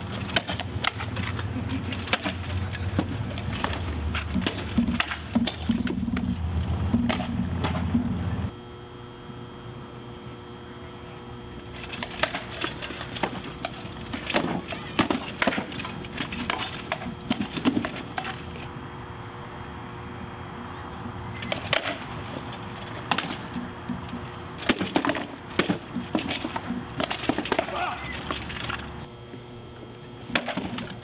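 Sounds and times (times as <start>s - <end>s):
weapons clattering on shields: 0.0s - 6.4s, 11.8s - 18.7s, 21.4s - 29.0s.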